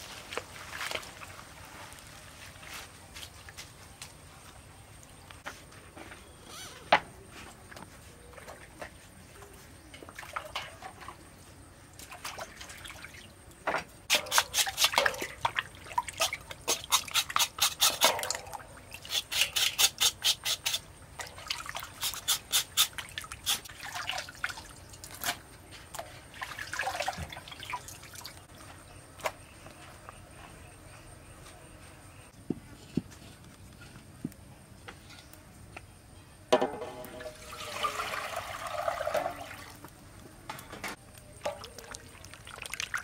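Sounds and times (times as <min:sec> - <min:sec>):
water splashing in steel bowl: 0:14.1 - 0:19.6, 0:21.2 - 0:25.3, 0:26.3 - 0:28.5, 0:36.8 - 0:39.8, 0:41.4 - 0:43.0.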